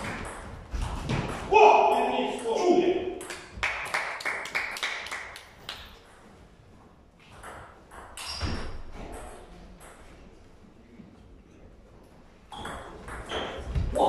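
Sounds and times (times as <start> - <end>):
table tennis ball hits: 3.1 - 4.4, 12.5 - 14.0.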